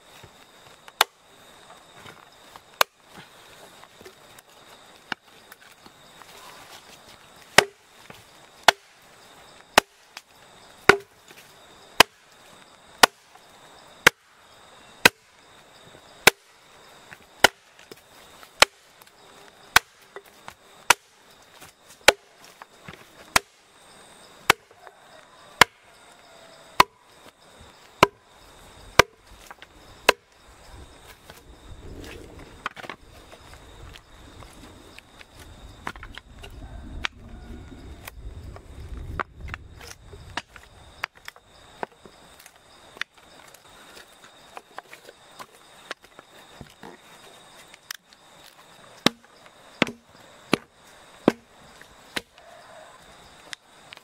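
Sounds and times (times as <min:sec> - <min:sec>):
hatchet chopping wood: 0:01.0 - 0:01.2, 0:02.8 - 0:03.1, 0:07.5 - 0:07.9, 0:08.6 - 0:09.0, 0:09.8 - 0:11.2, 0:12.0 - 0:12.3, 0:13.0 - 0:13.3, 0:14.0 - 0:14.3, 0:15.0 - 0:15.3, 0:16.2 - 0:16.5, 0:17.4 - 0:18.0, 0:18.6 - 0:19.1, 0:19.7 - 0:21.2, 0:21.9 - 0:23.6, 0:24.5 - 0:24.8, 0:25.6 - 0:25.8, 0:26.8 - 0:27.0, 0:28.0 - 0:28.2, 0:29.0 - 0:30.3, 0:49.0 - 0:51.5, 0:52.1 - 0:52.4.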